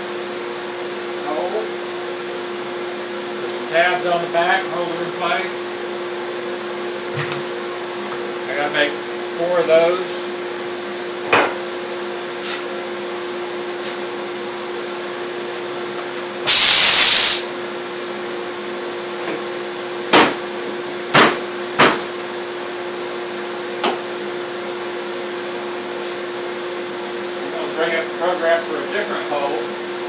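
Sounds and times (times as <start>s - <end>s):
loud hiss: 16.4s - 17.5s.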